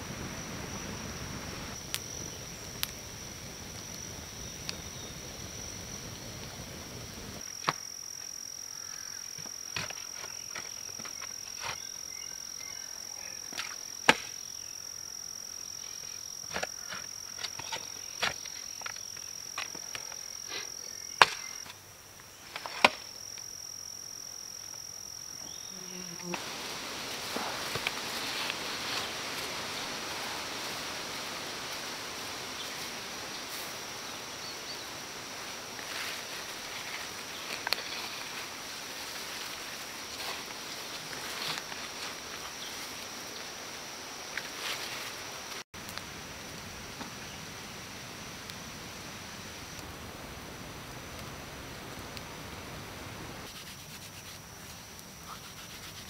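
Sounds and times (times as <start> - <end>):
campfire crackling: 0.0 - 25.4, 26.2 - 56.0
high insect drone: 0.0 - 56.0
sand scraping and rustling: 26.2 - 43.5, 44.3 - 45.6, 53.3 - 56.0.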